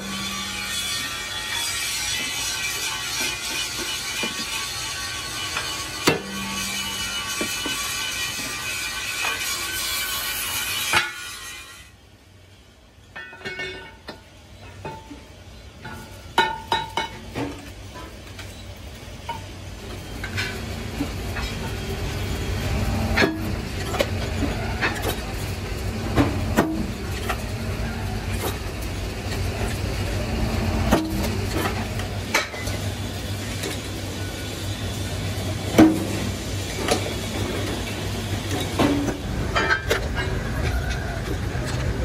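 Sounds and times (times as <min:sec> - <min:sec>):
metal clanks and clinks: 0:13.1 - 0:18.6, 0:38.5 - 0:41.8
workshop machine motor humming: 0:19.9 - 0:39.8.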